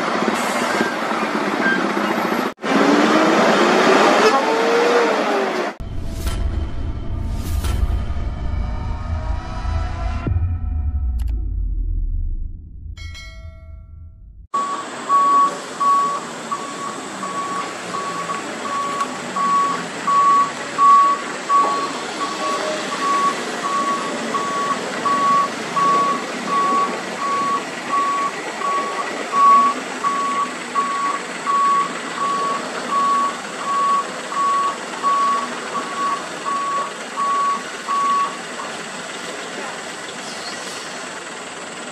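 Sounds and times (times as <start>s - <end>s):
diesel engine running: 14.1s - 41.9s
truck reversing alarm beeping: 14.5s - 38.8s.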